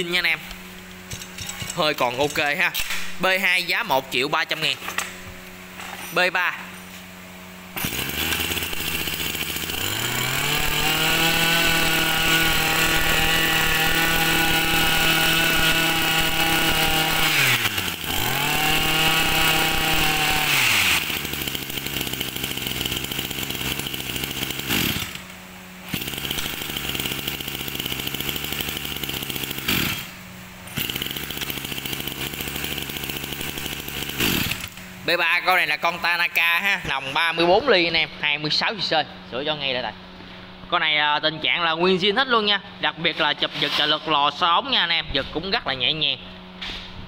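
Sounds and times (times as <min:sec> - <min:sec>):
brush cutter engine revving: 0:07.5 - 0:37.3.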